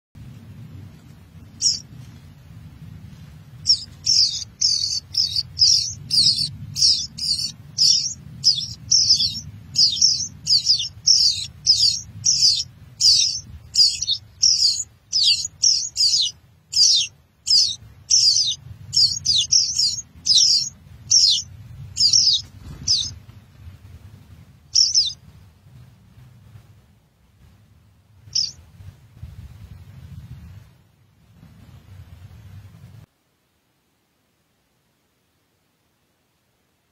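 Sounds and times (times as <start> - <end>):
nestlings cheeping: 1.6 - 1.8, 3.6 - 23.2, 24.7 - 25.2, 28.3 - 28.6.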